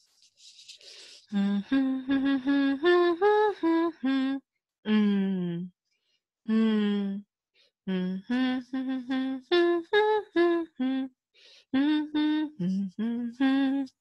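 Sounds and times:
woman humming a tune: 1.3 - 5.7, 6.5 - 7.2, 7.9 - 11.1, 11.8 - 14.0.

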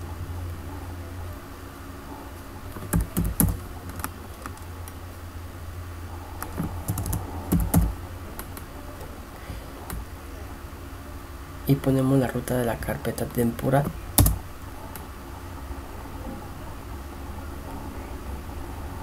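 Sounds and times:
steady low hum: 0.0 - 19.0
keyboard keys clicking: 2.7 - 4.7, 6.4 - 8.7, 13.6 - 14.4.

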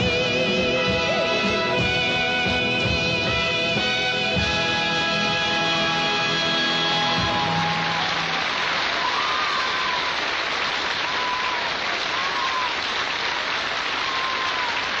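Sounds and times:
band sustained note: 0.0 - 8.0
audience applauding: 0.0 - 15.0.

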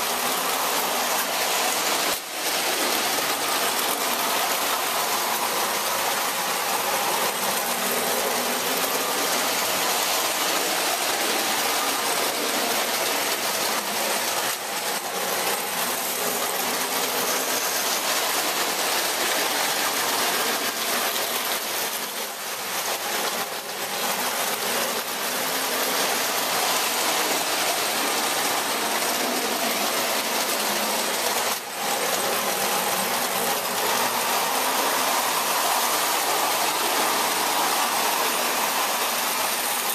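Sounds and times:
model trains running on track: 0.0 - 39.9.

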